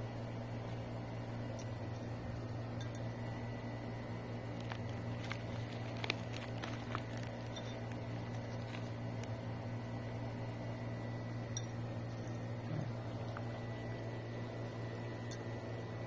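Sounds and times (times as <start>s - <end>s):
steady low hum: 0.0s - 16.0s
foil crinkling: 4.5s - 9.3s.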